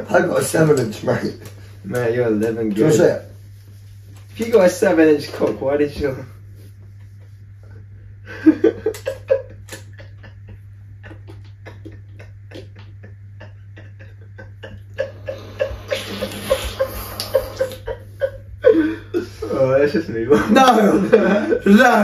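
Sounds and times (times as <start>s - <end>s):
young man laughing: 7.6s - 22.0s.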